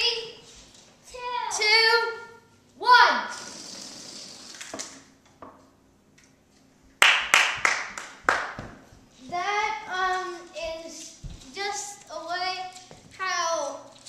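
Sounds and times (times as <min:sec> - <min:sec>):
child's voice: 0:01.1 - 0:03.4, 0:09.2 - 0:13.9
hands clapping: 0:07.0 - 0:08.8.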